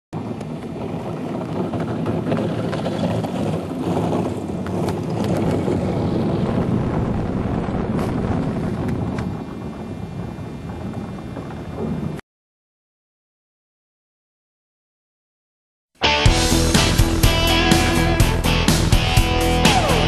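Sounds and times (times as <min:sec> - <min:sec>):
runners rushing over ice: 0:00.2 - 0:09.3.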